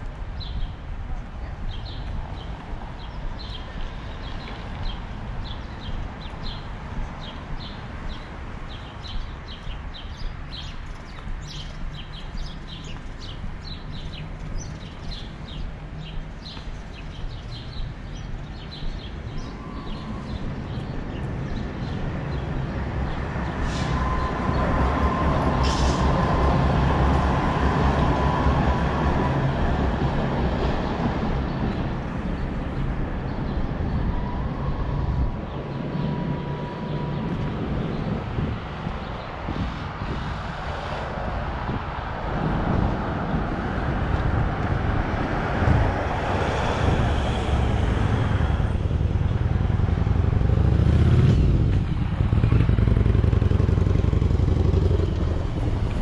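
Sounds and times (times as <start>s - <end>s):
footsteps on pavement: 10.2s - 19.5s
tram rumbling past: 19.1s - 56.0s.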